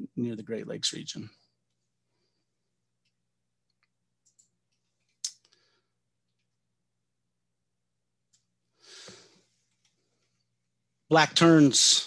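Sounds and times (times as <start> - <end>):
faint electrical hum: 0.0 - 12.0
faint clicks: 3.0 - 5.6.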